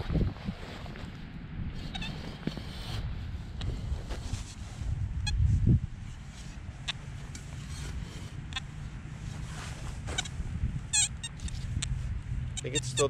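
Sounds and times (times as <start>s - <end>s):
steady low rumble: 0.0s - 13.0s.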